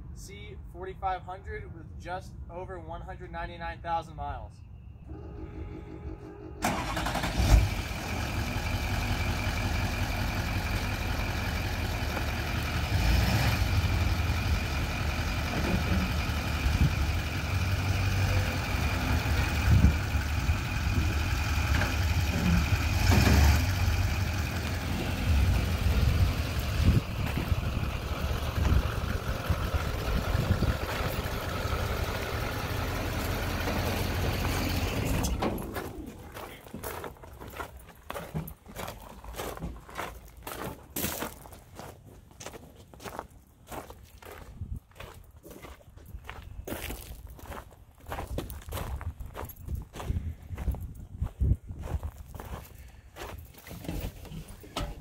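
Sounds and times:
high engine whine: 5.0 - 36.6
diesel truck engine running: 5.1 - 37.4.

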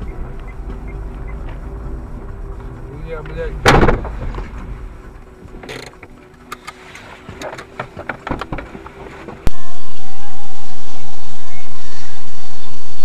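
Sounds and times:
low road rumble: 0.0 - 13.0
loud vehicle crash impact: 3.6 - 4.3.

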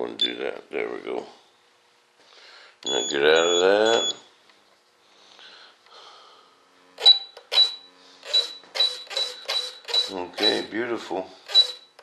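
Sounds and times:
servo whirring with high whine: 2.8 - 4.3, 6.7 - 12.0.

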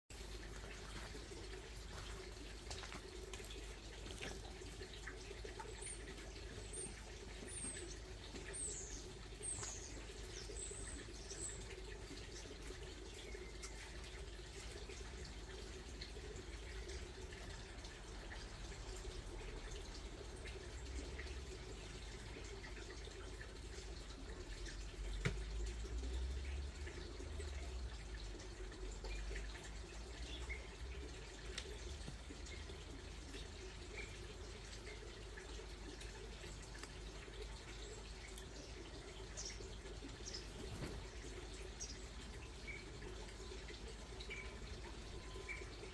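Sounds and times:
faint high chirps and ticks: 0.1 - 45.9
bird chirping: 44.3 - 45.9.

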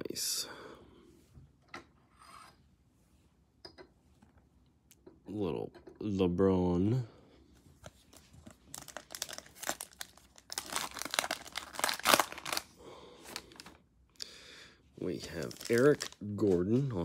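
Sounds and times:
foil wrapper crackling and ripping: 8.6 - 13.8, 15.2 - 16.6.

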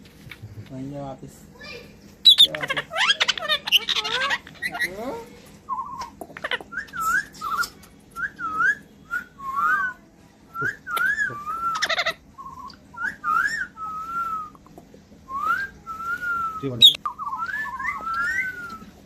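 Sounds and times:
parakeet harsh squawks: 1.7 - 5.2, 11.7 - 12.2
parakeet warbling whistles: 10.7 - 14.2, 15.6 - 18.9.

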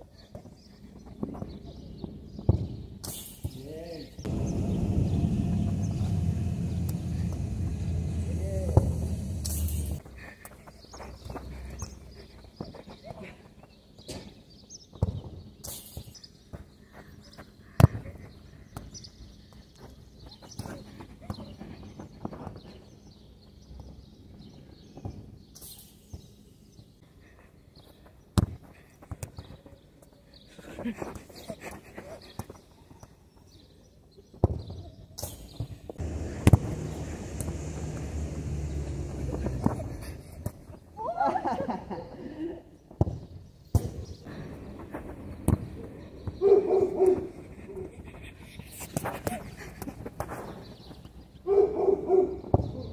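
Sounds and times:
steady low rumble: 4.3 - 10.0, 36.0 - 40.8
ball thumping: 5.2 - 10.0, 36.0 - 40.6, 45.4 - 46.4
football struck hard: 36.0 - 37.0.

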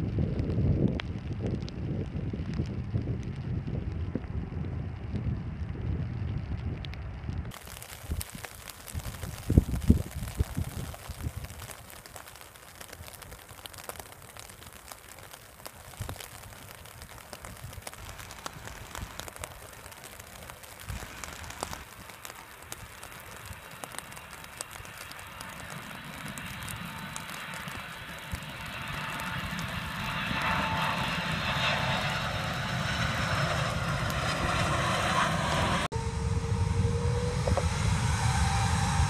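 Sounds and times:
jet airliner engine noise: 0.0 - 39.0
faint crackling clicks: 6.4 - 30.5.

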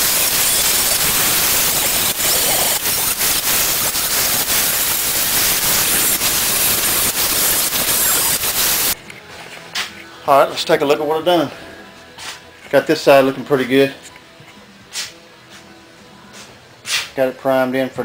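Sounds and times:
angle grinder grinding metal: 0.0 - 9.0.

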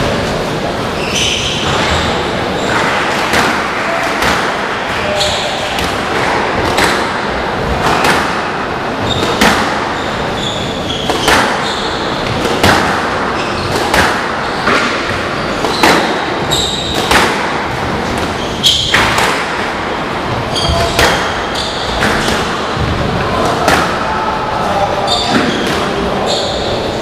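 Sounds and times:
shoes squeaking on wooden floor: 0.9 - 3.2, 9.0 - 12.4, 13.2 - 17.2, 17.9 - 19.1, 20.3 - 22.3
squash ball cracking off rackets: 2.6 - 5.0, 5.6 - 24.2.

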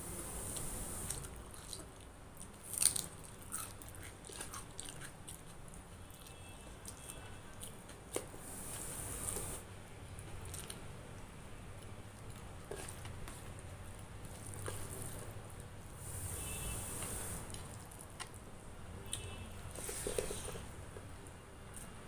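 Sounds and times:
person chewing food: 1.0 - 9.6, 10.2 - 10.8.

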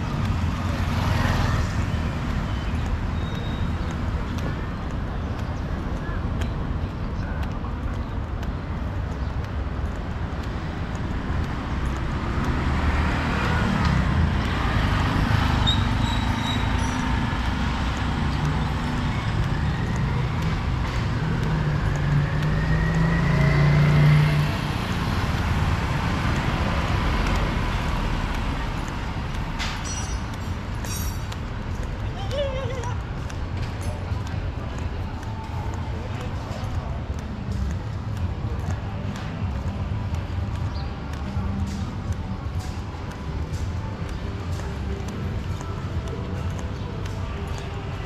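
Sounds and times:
vehicle engines and tyre noise: 0.0 - 48.0
car engine passing close: 11.8 - 29.4.

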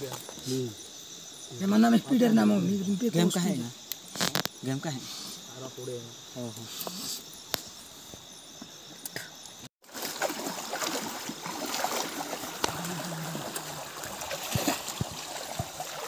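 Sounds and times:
night insects trilling: 0.0 - 16.0
water trickling and splashing: 9.8 - 16.0.

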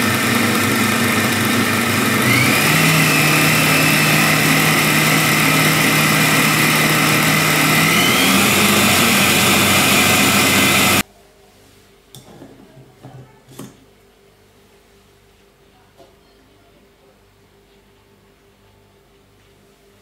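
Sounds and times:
food processor whirring: 0.0 - 11.0.

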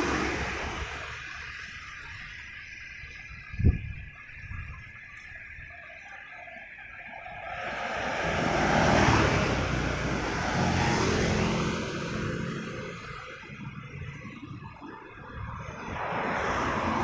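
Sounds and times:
motorcycles passing by: 0.0 - 1.7, 7.4 - 17.0.

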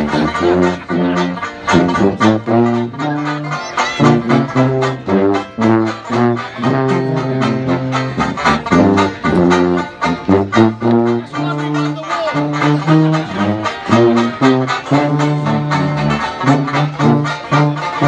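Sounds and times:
sousaphone oompah bass: 0.0 - 18.0
strummed banjo: 0.0 - 18.0
trombone: 0.0 - 18.0.

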